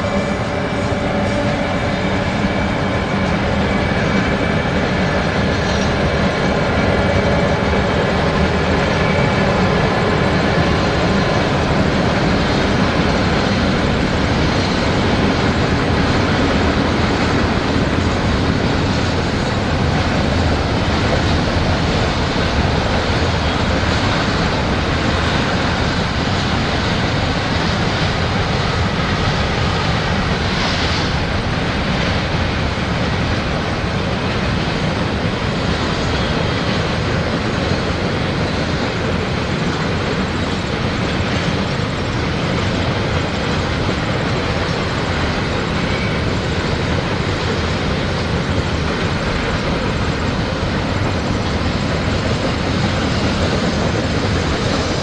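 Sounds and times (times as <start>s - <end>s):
electric locomotive hum: 0.0s - 55.0s.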